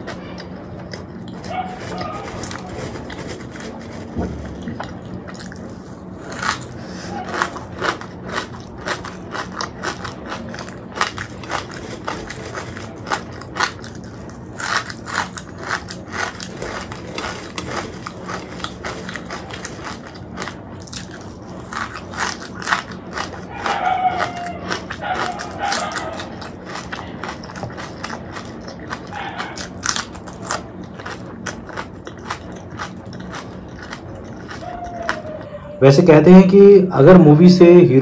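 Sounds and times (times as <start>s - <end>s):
chewing crunchy fries: 0.0s - 36.5s.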